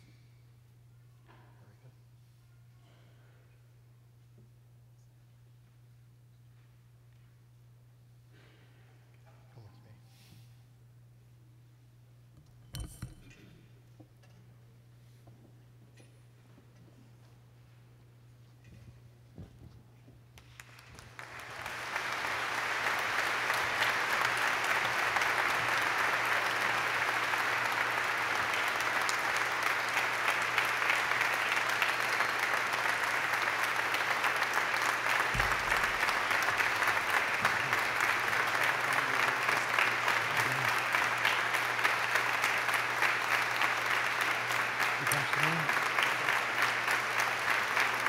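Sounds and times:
congregation applauding: 0:20.4 - 0:48.0.

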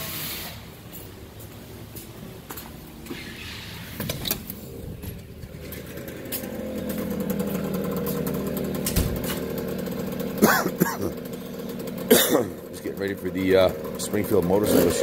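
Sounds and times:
two-stroke dirt bike engine: 0:04.5 - 0:15.0.

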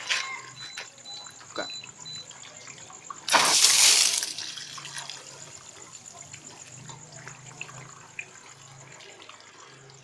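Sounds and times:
water trickling: 0:00.2 - 0:10.0
faint drip ticks: 0:00.7 - 0:03.3, 0:05.5 - 0:10.0.

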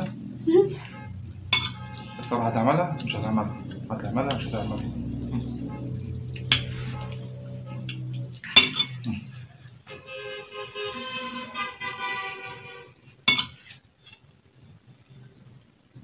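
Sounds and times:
steady pitched tone: 0:00.0 - 0:13.4
fork clinking and scraping plate: 0:01.5 - 0:02.3, 0:07.9 - 0:09.1, 0:13.3 - 0:13.8.

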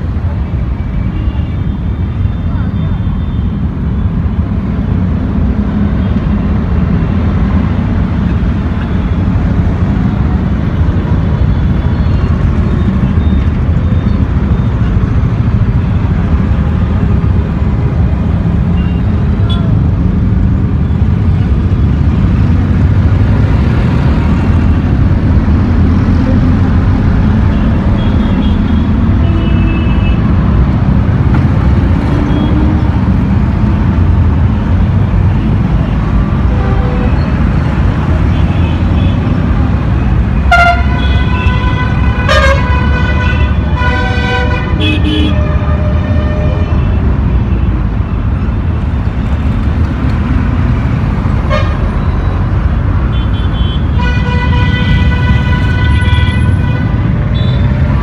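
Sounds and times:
heavy road traffic rumble: 0:00.0 - 0:58.0
vehicle horns honking: 0:40.4 - 0:47.1, 0:51.4 - 0:52.2, 0:53.1 - 0:57.8.

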